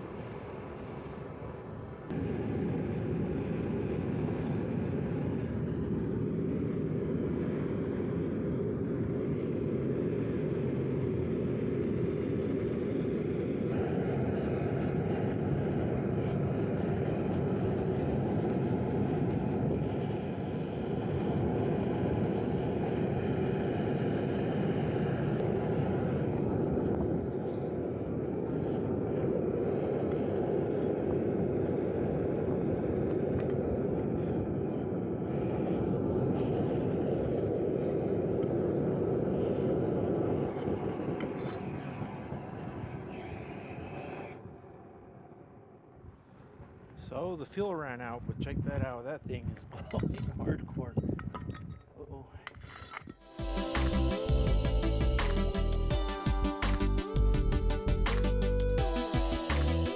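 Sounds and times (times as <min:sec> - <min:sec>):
oil burner roaring: 0:00.0 - 0:47.8.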